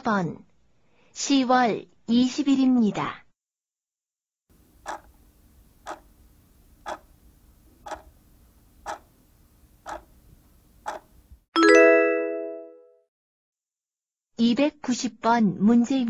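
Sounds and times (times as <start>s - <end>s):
timer ticking: 4.8s - 5.1s, 5.8s - 6.0s, 7.8s - 8.1s, 8.9s - 9.1s, 9.8s - 10.1s, 10.9s - 11.1s
bright ringing chime: 11.6s - 12.8s.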